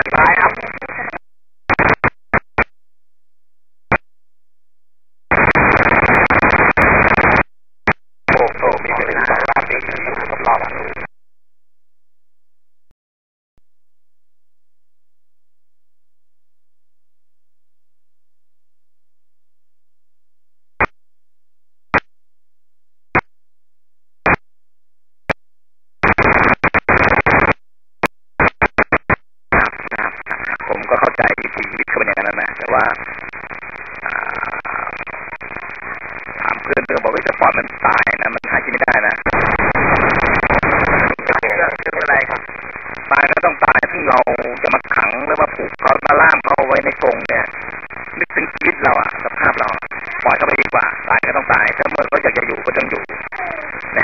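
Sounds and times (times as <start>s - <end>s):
radio static bursts: 0.0s - 2.7s, 5.3s - 11.1s, 26.0s - 54.0s
steady radio hiss: 0.0s - 2.7s, 5.3s - 11.1s, 26.0s - 27.6s, 28.4s - 54.0s.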